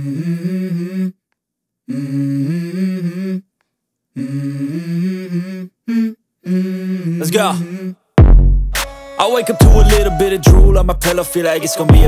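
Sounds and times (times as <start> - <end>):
person humming a melody: 0.0 - 1.2, 4.2 - 8.0, 9.2 - 12.0.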